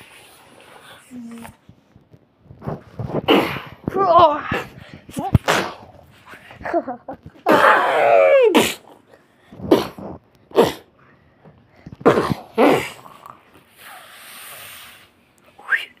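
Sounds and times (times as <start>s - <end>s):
person making vocal cries: 6.7s - 8.8s.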